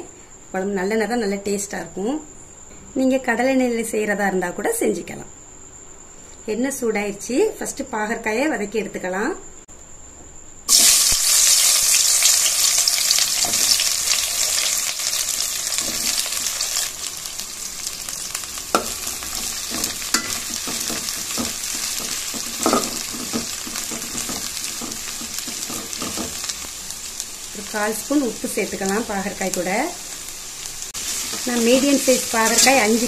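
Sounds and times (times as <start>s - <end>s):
vegetables sizzling in oil: 10.7s - 33.0s.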